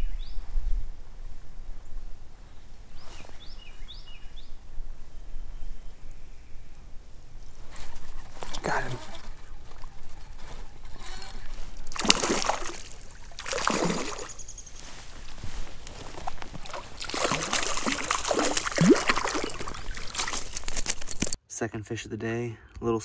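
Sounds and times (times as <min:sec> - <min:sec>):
fish splashing at water surface: 0:11.9 - 0:14.5, 0:16.2 - 0:20.9.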